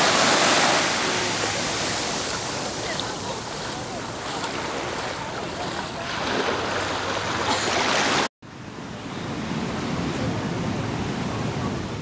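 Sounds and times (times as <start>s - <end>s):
small waves washing in: 0.0s - 8.3s
dull surf noise: 0.0s - 12.0s.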